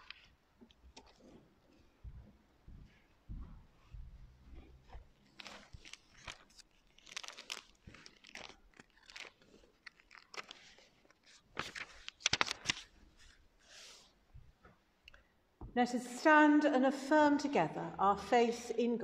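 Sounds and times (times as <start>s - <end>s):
paper rustling and crinkling: 4.5s - 14.1s.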